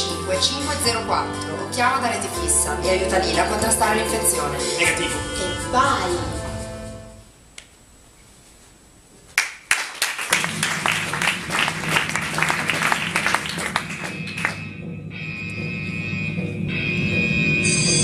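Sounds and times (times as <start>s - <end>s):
music playing: 0.0s - 7.2s, 10.4s - 18.0s
audience applauding: 9.4s - 14.7s.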